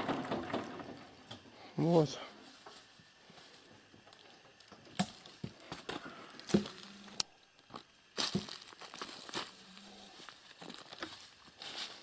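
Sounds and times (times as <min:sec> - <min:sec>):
footsteps crunching dry leaves: 0:07.7 - 0:12.0.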